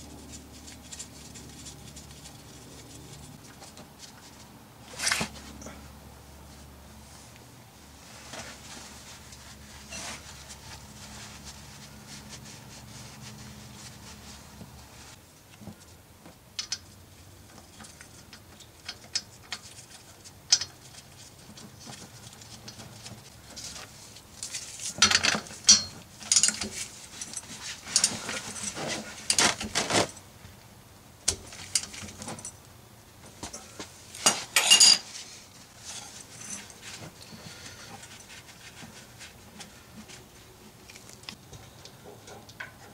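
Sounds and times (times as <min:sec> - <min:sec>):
shop towel rubbing: 0:06.6 - 0:15.2
rustling and clinking: 0:08.0 - 0:15.8, 0:16.6 - 0:30.3, 0:31.3 - 0:42.9
metallic clinks and scrapes: 0:09.2 - 0:10.8, 0:24.4 - 0:30.2, 0:33.5 - 0:37.1.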